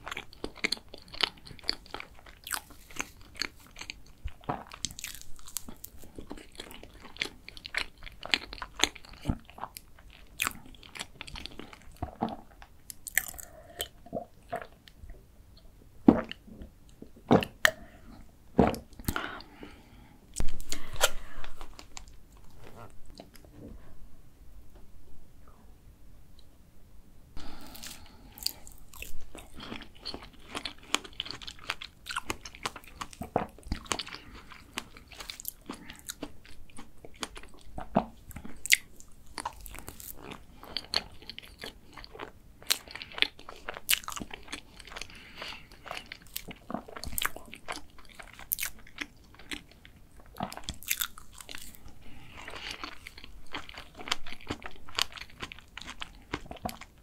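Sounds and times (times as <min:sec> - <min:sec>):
wet chewing and crunching: 0:00.0 - 0:15.0, 0:27.5 - 0:57.0.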